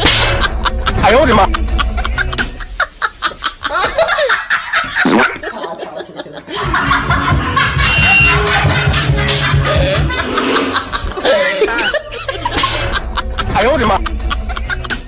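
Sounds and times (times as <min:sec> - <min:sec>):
background music with steady beat: 0:00.0 - 0:04.8, 0:06.4 - 0:15.0
comic voice snickering: 0:04.8 - 0:05.6.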